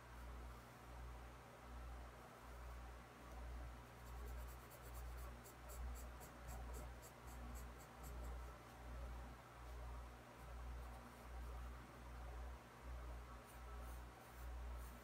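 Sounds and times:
pencil scratching on paper: 4.0 - 8.5.

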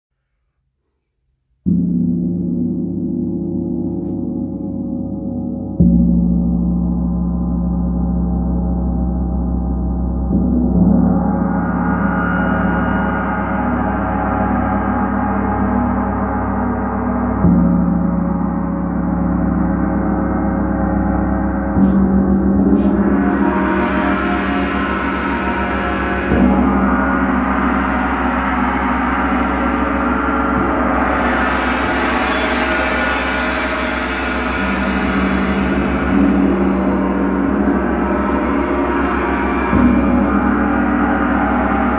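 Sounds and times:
gong struck with soft mallet: 21.2 - 41.9.

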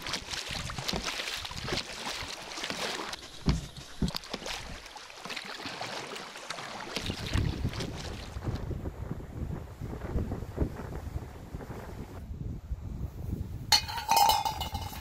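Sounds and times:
paddle splashes: 0.0 - 8.9
water sloshing around kayak: 0.0 - 8.9.

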